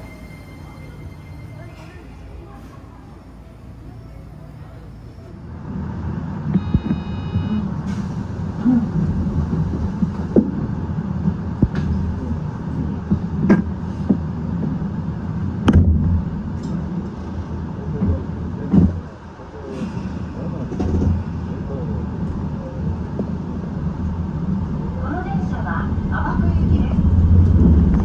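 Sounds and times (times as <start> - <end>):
train rumble: 0.0 - 28.0
brief high tone: 6.6 - 7.7.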